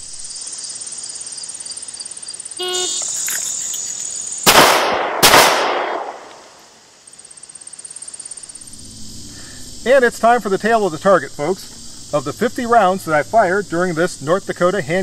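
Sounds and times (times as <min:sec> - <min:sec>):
insects droning: 0:00.0 - 0:15.0
pistol shots with echo: 0:04.4 - 0:06.5.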